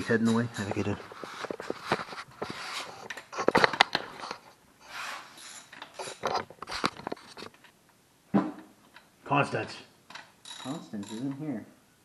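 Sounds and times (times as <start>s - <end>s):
metal tool clinks: 10.4s - 11.4s.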